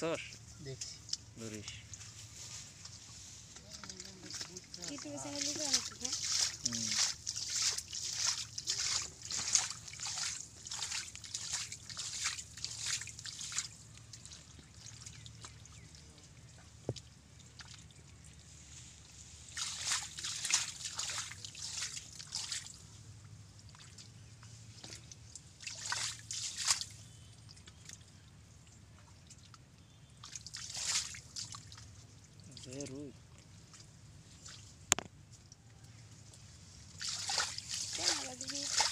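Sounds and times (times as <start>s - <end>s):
hands squelching in wet mud: 3.5s - 22.9s, 23.6s - 28.2s, 29.0s - 32.8s, 36.3s - 38.9s
water splashing and dripping: 3.7s - 18.5s, 19.5s - 22.8s, 23.5s - 24.2s, 24.8s - 29.6s, 30.2s - 35.0s, 36.9s - 38.9s.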